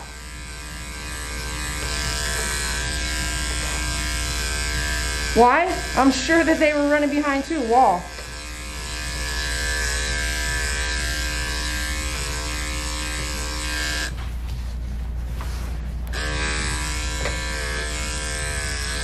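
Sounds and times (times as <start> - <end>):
electric clipper buzzing: 0.0 - 14.2, 16.1 - 19.0.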